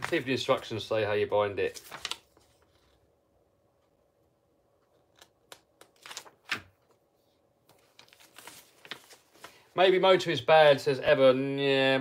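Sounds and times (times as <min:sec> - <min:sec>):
paper rustling: 0:00.0 - 0:00.9, 0:01.6 - 0:03.0, 0:05.0 - 0:07.0, 0:07.6 - 0:09.8
paper handling clicks: 0:01.6 - 0:02.5, 0:04.9 - 0:07.0.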